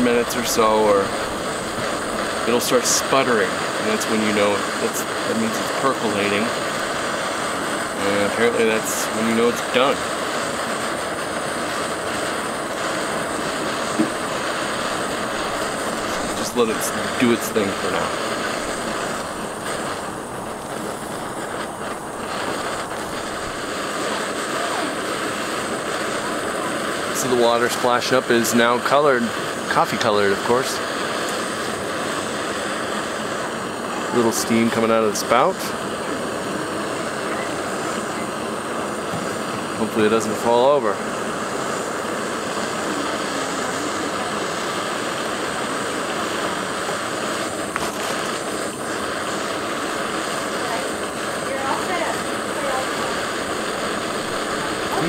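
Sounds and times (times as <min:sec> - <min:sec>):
camping stove gas hiss: 0:00.0 - 0:55.0.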